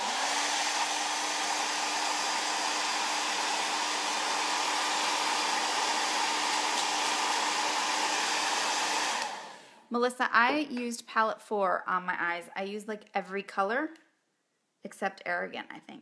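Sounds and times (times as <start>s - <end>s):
hair dryer blowing: 0.0s - 9.8s.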